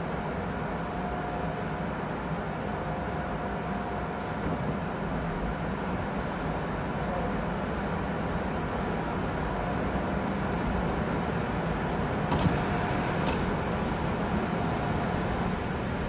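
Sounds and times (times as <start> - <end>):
car wash machinery running: 4.5 - 16.0.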